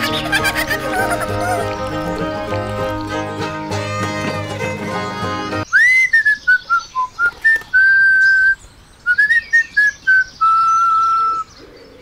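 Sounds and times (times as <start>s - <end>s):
person whistling a tune: 5.7s - 11.4s.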